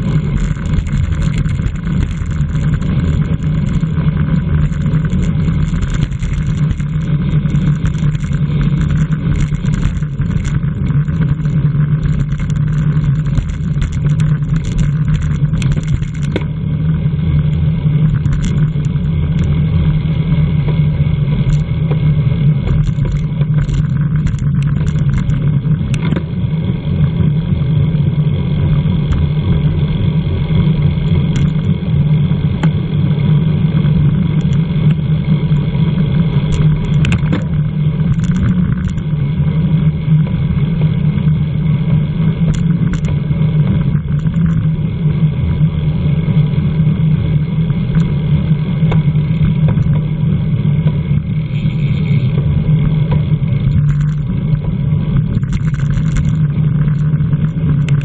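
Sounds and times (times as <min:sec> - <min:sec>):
faint ticks: 0:00.0 - 0:16.5, 0:22.7 - 0:26.2, 0:31.0 - 0:31.7, 0:36.4 - 0:37.5, 0:38.1 - 0:39.0, 0:55.3 - 0:58.0.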